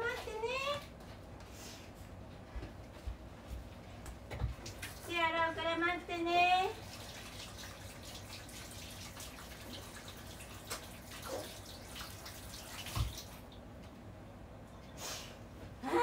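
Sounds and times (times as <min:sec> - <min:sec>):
water running from tap: 0:04.6 - 0:05.2, 0:06.6 - 0:13.6.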